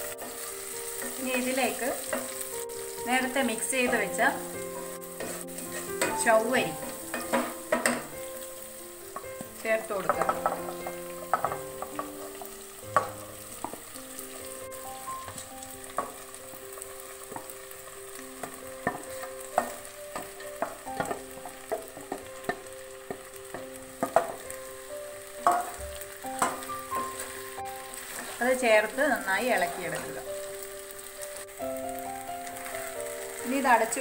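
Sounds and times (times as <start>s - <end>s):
soft background music: 0.0s - 34.0s
spatula scraping and tapping: 5.2s - 6.2s, 6.8s - 8.2s, 9.1s - 13.8s, 18.4s - 24.5s, 26.4s - 27.4s, 28.0s - 28.4s.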